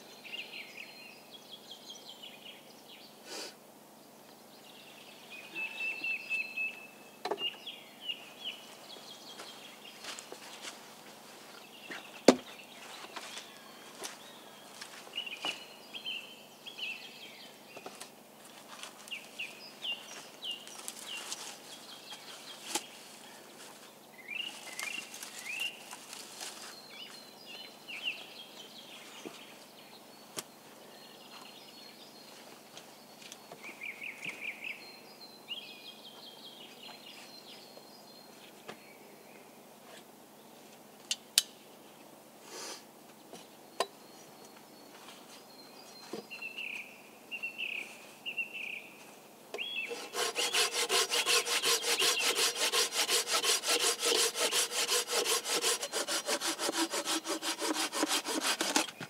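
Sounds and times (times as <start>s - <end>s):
birds singing and chirping: 4.8s - 10.2s, 49.6s - 59.0s.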